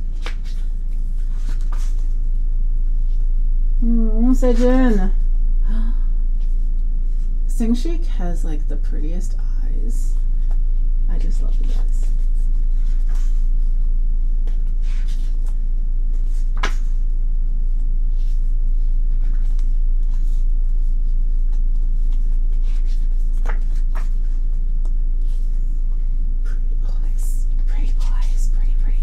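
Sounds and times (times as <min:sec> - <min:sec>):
steady low hum: 0:00.0 - 0:29.0
photobook pages turning: 0:00.1 - 0:02.2, 0:11.6 - 0:13.4, 0:14.4 - 0:17.0, 0:19.1 - 0:20.4, 0:21.5 - 0:24.4.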